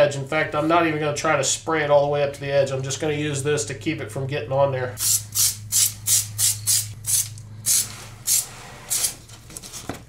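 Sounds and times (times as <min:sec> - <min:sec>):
aerosol can spraying in bursts: 0:05.0 - 0:09.1.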